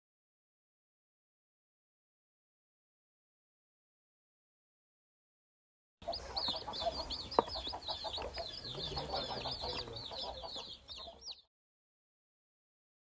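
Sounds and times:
chicks peeping: 6.0s - 11.5s.

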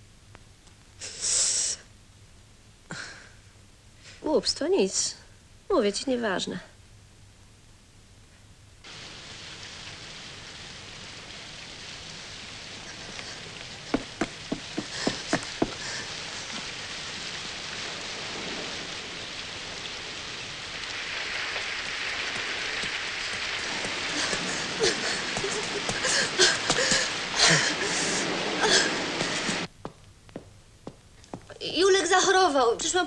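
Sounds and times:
steady rain: 0.0s - 6.9s, 8.2s - 33.0s
sharp knocks: 13.9s - 15.8s.

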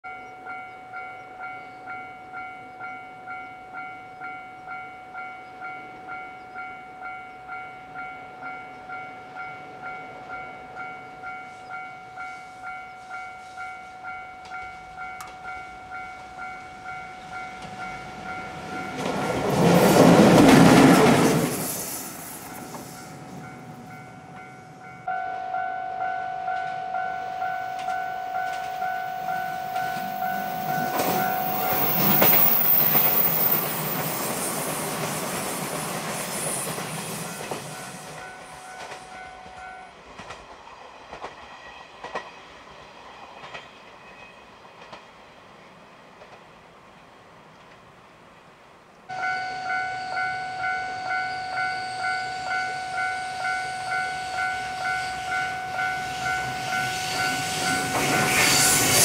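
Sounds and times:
level-crossing bell ringing: 0.0s - 19.4s, 22.5s - 34.5s, 49.1s - 59.0s
electric locomotive passing: 0.1s - 59.0s.

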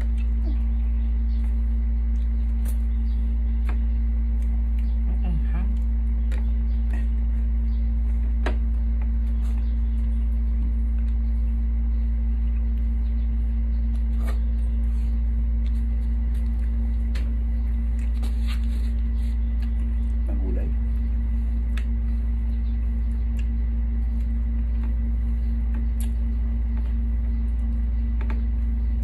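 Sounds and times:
steady low hum: 0.0s - 29.0s
eating clicks and smacks: 2.0s - 5.1s, 21.6s - 25.0s, 25.6s - 28.4s.

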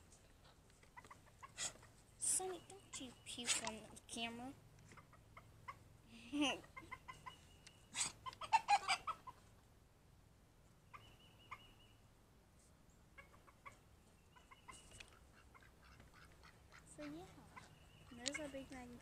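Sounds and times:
chickens clucking: 0.4s - 3.9s, 4.8s - 9.7s, 13.1s - 19.0s.

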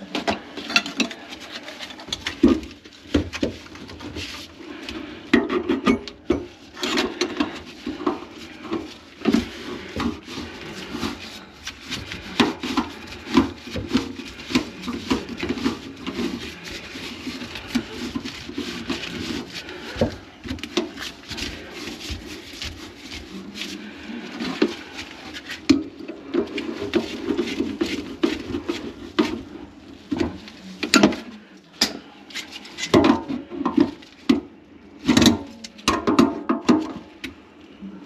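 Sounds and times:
tools knocking on pipes: 5.3s - 10.2s.

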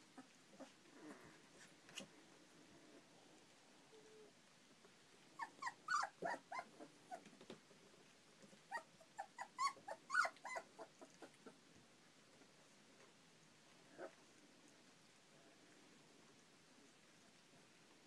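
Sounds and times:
puppies crying: 5.4s - 7.2s, 8.7s - 11.6s.

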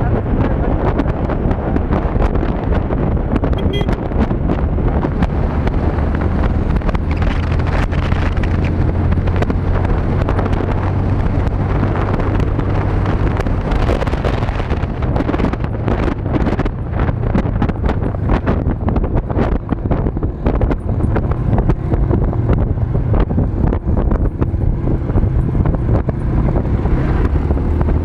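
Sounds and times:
motorcycle engine running: 0.0s - 28.0s
wind buffeting microphone: 0.0s - 28.0s.

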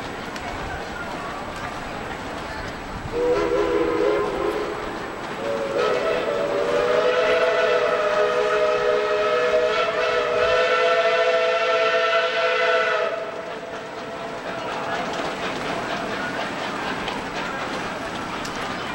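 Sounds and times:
steam locomotive whistle: 3.1s - 14.5s.

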